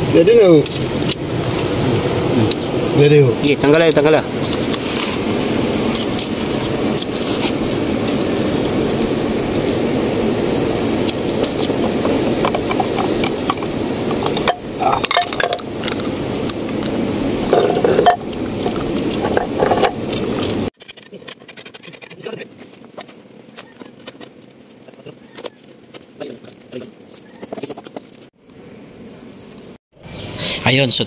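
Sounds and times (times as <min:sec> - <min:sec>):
steady noise: 0:00.0 - 0:21.7
steel parts clinking and scraping: 0:11.6 - 0:16.2, 0:17.4 - 0:24.4.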